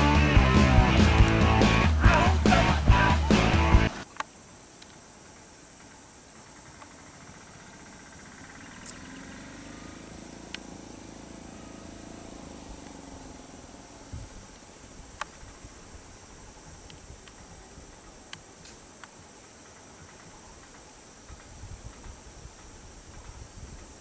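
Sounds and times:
insects chirring: 0:01.2 - 0:24.0
faint clicks: 0:04.0 - 0:07.1, 0:10.4 - 0:10.7, 0:14.5 - 0:15.6, 0:16.8 - 0:23.9
vehicle engine hum: 0:06.6 - 0:15.3.

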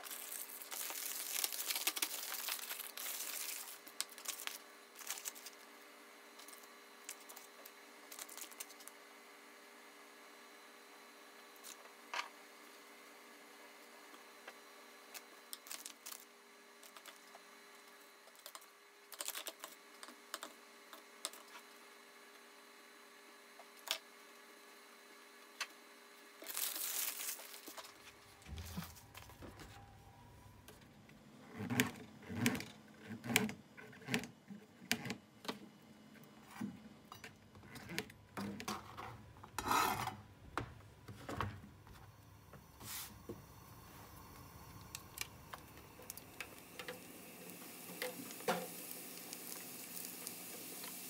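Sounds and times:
wrappers rustling: 0:00.0 - 0:05.6, 0:26.4 - 0:29.3.

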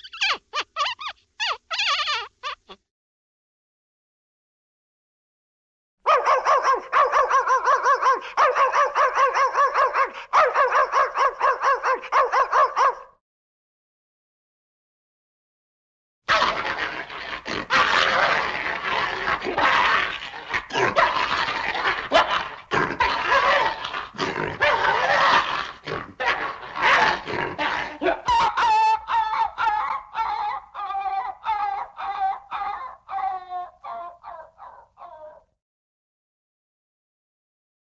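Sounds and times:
cartoon dog barking: 0:00.0 - 0:02.8, 0:06.1 - 0:13.2, 0:16.3 - 0:35.6
dog whimpering yelps: 0:00.0 - 0:02.8, 0:28.3 - 0:35.5.

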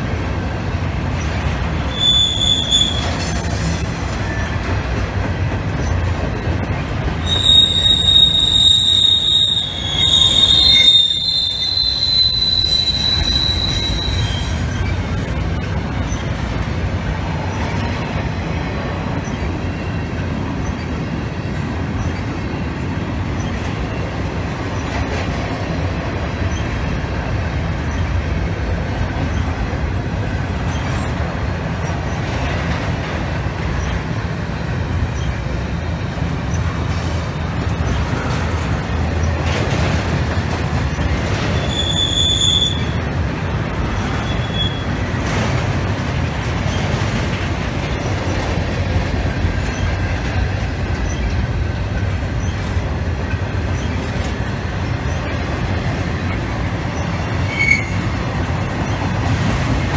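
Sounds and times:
train cars rumbling on rails: 0:00.0 - 0:59.9
train wheel squeal: 0:01.3 - 0:05.0, 0:05.8 - 0:16.6, 0:19.1 - 0:21.1, 0:21.9 - 0:22.6, 0:23.3 - 0:25.0, 0:26.4 - 0:26.8, 0:27.8 - 0:28.2, 0:29.2 - 0:29.6, 0:30.6 - 0:31.2, 0:33.7 - 0:34.2, 0:35.1 - 0:35.5, 0:36.4 - 0:51.5, 0:52.2 - 0:59.9.

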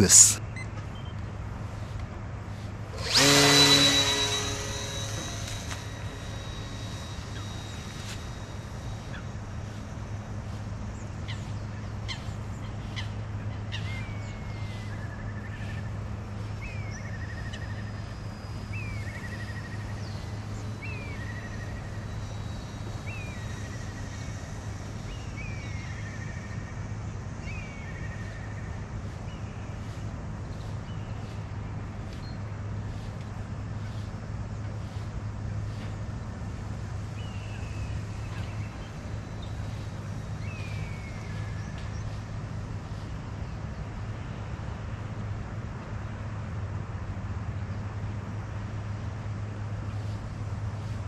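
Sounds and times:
steady low hum: 0:00.0 - 0:51.0
bird call with buzzy trill: 0:03.0 - 0:09.2.

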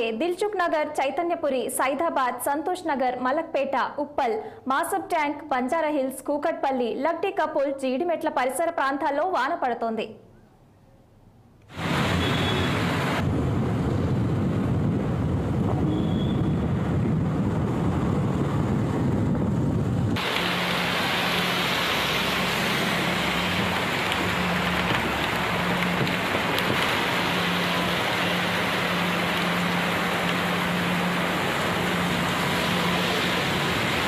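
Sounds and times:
heavy rain: 0:11.7 - 0:34.0
tyres on wet road: 0:11.7 - 0:34.0
engine hum: 0:11.8 - 0:34.0.

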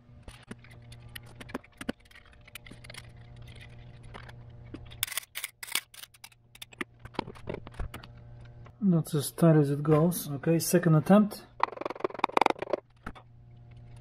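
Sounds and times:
steady low hum: 0:00.0 - 0:14.0
metallic clicks and scrapes: 0:00.2 - 0:08.6.

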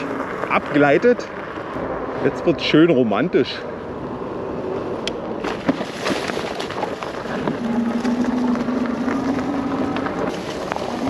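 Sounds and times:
bike tyres rolling over leaves: 0:00.0 - 0:02.7, 0:05.4 - 0:11.0
low motor hum: 0:00.0 - 0:11.0.

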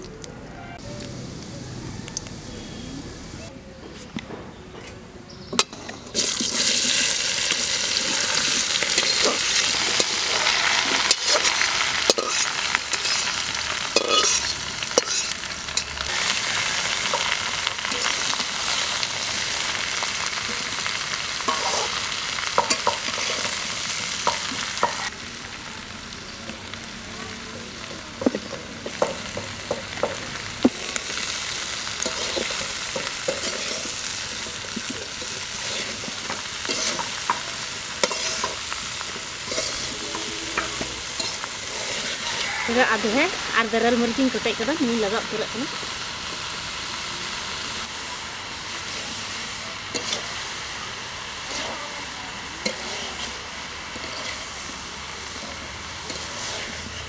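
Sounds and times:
vegetables sizzling in hot oil: 0:05.4 - 0:57.0
metal spatula scraping pan: 0:08.0 - 0:16.4, 0:35.6 - 0:37.4, 0:38.0 - 0:38.6, 0:39.4 - 0:43.4, 0:52.6 - 0:53.4, 0:54.0 - 0:54.6, 0:55.4 - 0:57.0.

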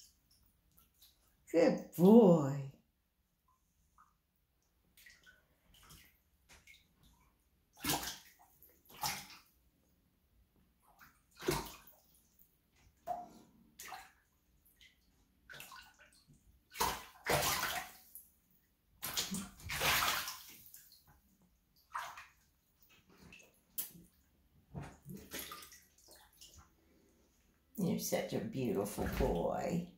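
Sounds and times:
paws splashing shallow water: 0:13.0 - 0:18.3, 0:19.0 - 0:21.1, 0:24.8 - 0:26.6.

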